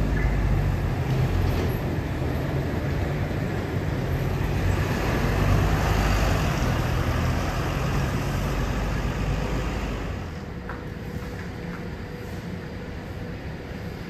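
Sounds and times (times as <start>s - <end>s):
bus engine rumble: 0.0s - 14.0s
tyre and traffic noise: 0.0s - 14.0s.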